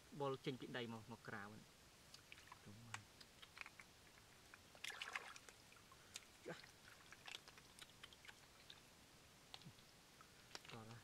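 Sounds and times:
small clicks in wet leaves: 0:02.1 - 0:08.8, 0:09.5 - 0:11.0
hands sloshing in shallow water: 0:04.5 - 0:08.9.

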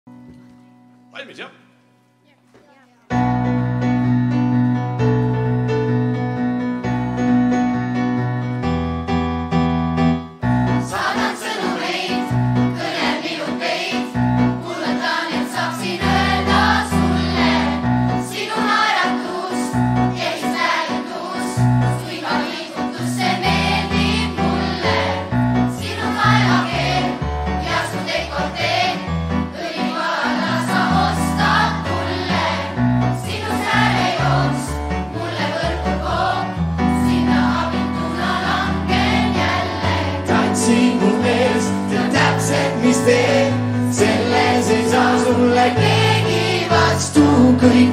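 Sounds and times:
choir singing in unison: 0:10.8 - 0:47.9.

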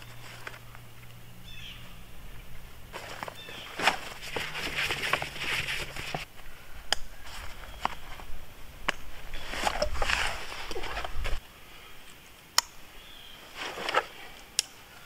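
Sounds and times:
backpack and foam pad rustling: 0:00.0 - 0:00.9, 0:02.8 - 0:06.3, 0:07.2 - 0:11.4, 0:13.4 - 0:14.4.

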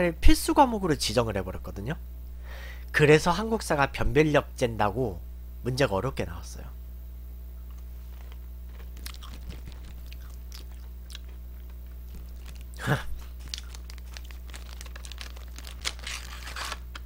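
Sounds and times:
low electrical hum: 0:00.0 - 0:17.0
crunching and chewing biscuit: 0:07.6 - 0:17.0
packaging handling noise: 0:11.2 - 0:17.0.

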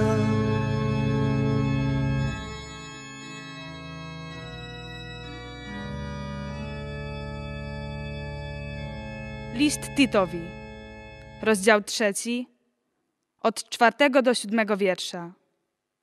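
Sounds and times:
pipe organ chords: 0:00.0 - 0:11.8.

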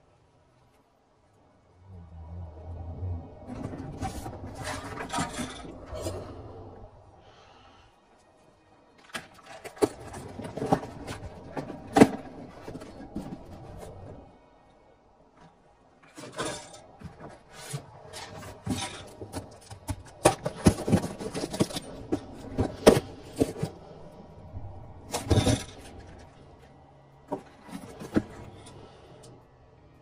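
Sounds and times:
cardboard boxes and cans knocking: 0:18.6 - 0:23.8.

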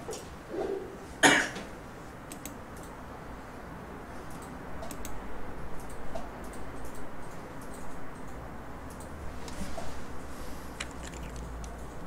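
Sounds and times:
person coughing: 0:01.2 - 0:01.6.

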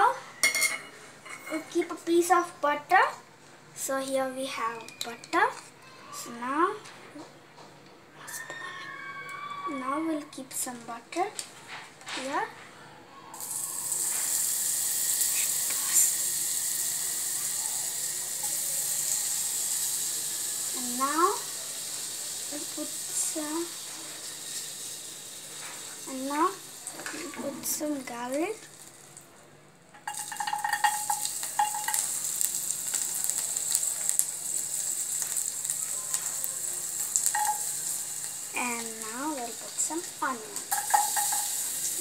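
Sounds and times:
butter sizzling in a pot: 0:00.0 - 0:03.2, 0:03.8 - 0:06.8, 0:13.3 - 0:42.0
utensil clinks: 0:40.6 - 0:42.0.

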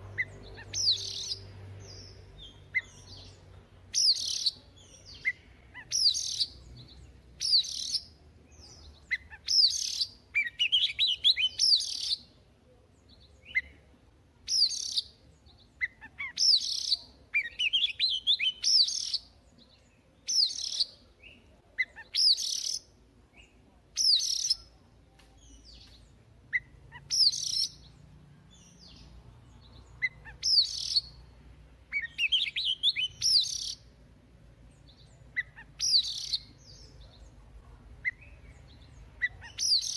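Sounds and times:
bird singing whistled phrases: 0:09.1 - 0:12.3, 0:15.8 - 0:19.3, 0:20.3 - 0:24.7, 0:26.5 - 0:27.9, 0:30.0 - 0:31.2, 0:31.9 - 0:33.8, 0:35.4 - 0:37.1, 0:38.0 - 0:39.9.

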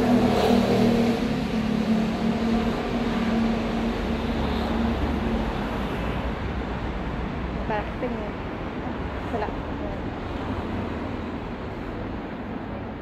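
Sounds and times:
traffic rumble: 0:00.0 - 0:13.0
vehicle engine humming: 0:00.0 - 0:13.0.

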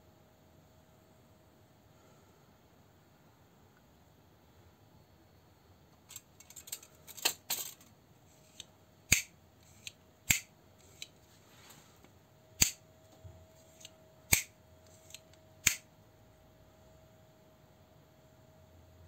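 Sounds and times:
knife handling noise: 0:06.0 - 0:11.2, 0:13.6 - 0:15.8
folding knife metallic clicks: 0:09.1 - 0:11.1, 0:12.6 - 0:12.8, 0:13.8 - 0:15.8.

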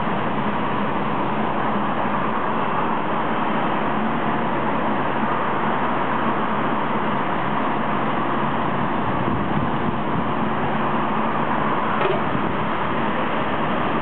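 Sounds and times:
road traffic: 0:00.0 - 0:14.0
short knock: 0:12.0 - 0:12.3.

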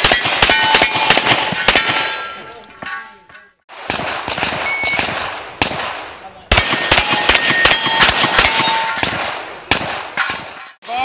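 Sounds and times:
rapid handgun fire: 0:00.0 - 0:02.2, 0:03.7 - 0:10.6
steel targets ringing: 0:00.0 - 0:03.4, 0:06.6 - 0:09.1.

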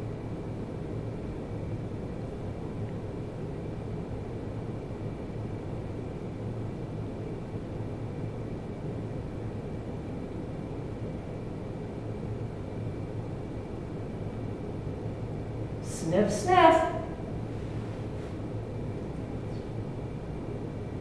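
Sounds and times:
low rumble and hiss: 0:00.0 - 0:21.0
faint high whine: 0:15.3 - 0:21.0.

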